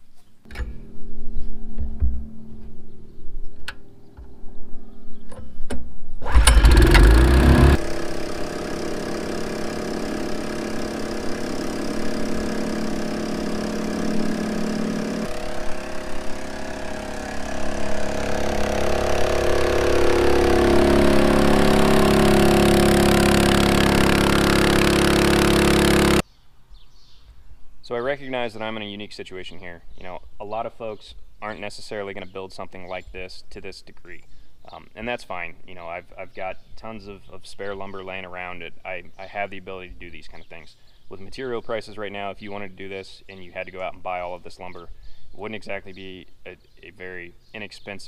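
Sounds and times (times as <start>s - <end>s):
pull-start clicks: 6.2s - 26.2s
small gasoline pump engine running: 6.2s - 26.2s.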